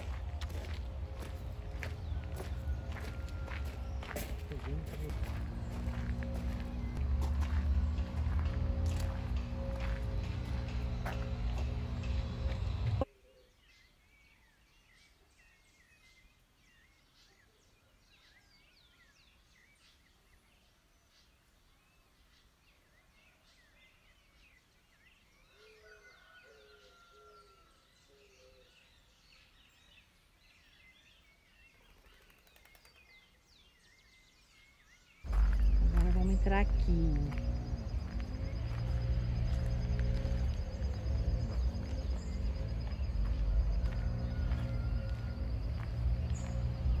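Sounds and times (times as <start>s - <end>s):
lower bird calls: 0.0s - 13.6s, 35.3s - 47.0s
birds chirping: 0.0s - 47.0s.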